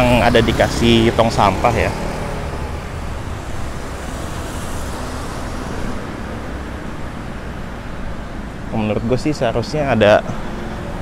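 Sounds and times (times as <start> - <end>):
motorbikes driving past: 0.0 - 8.6
cars driving past: 0.0 - 11.0.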